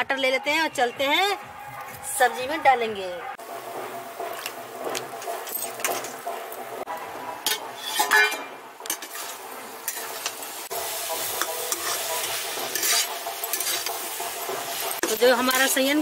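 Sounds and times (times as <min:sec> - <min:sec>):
masala sizzling: 0:03.4 - 0:16.0
metal spatula scraping pan: 0:07.4 - 0:16.0.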